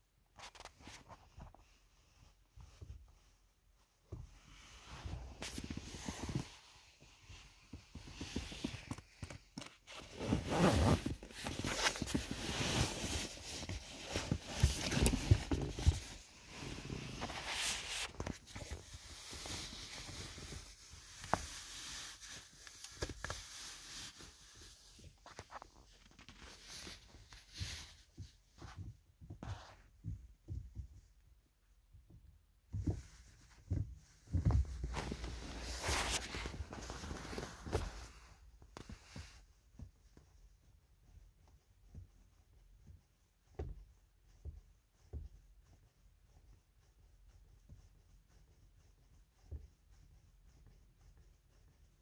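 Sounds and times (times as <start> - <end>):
fabric rustling and scraping: 0.2 - 31.0, 32.7 - 39.9
zipper unzipping: 10.0 - 13.1.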